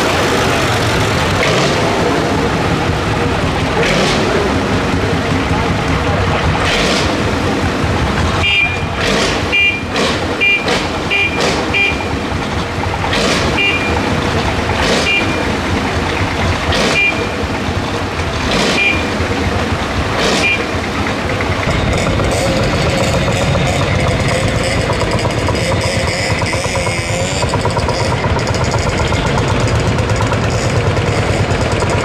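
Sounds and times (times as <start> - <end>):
sharp exhaust bangs: 0.0 - 32.0
stationary engine running: 0.0 - 32.0.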